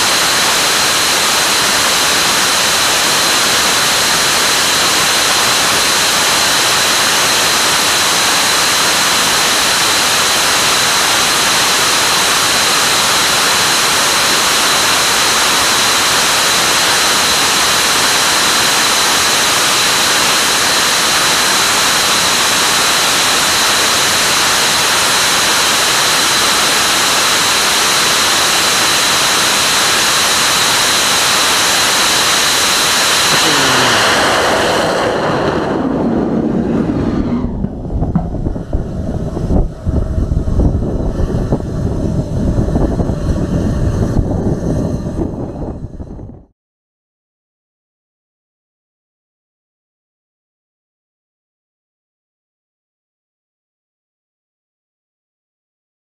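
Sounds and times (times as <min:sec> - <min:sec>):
rocket engine firing: 0:00.0 - 0:14.0, 0:33.0 - 0:46.0.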